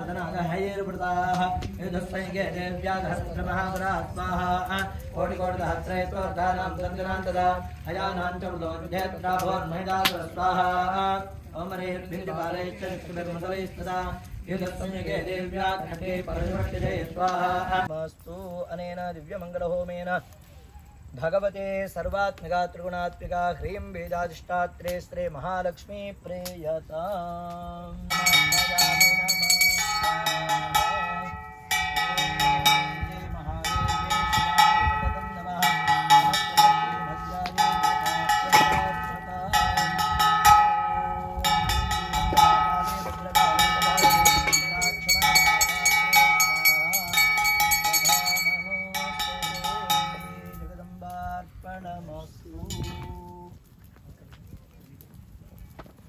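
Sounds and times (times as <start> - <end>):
voices chanting: 0.0 - 19.3, 27.4 - 53.0
hand bell rung rapidly: 28.1 - 50.7
wavering melodic line: 28.1 - 50.8.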